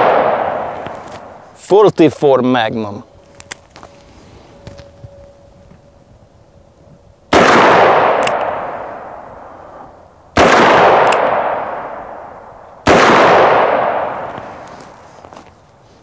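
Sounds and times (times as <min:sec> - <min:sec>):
revolver gunshots with echo: 0:00.0 - 0:01.4, 0:07.3 - 0:14.6.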